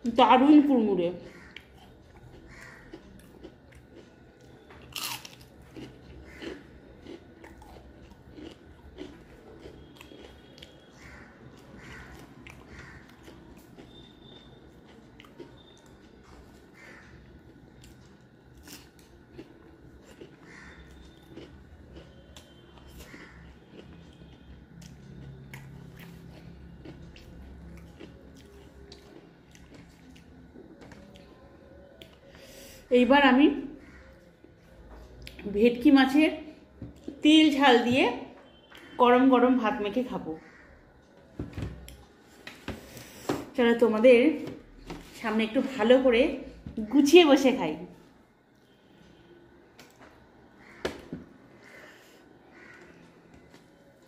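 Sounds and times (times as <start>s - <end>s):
crunchy bite and chewing: 1.4s - 31.3s.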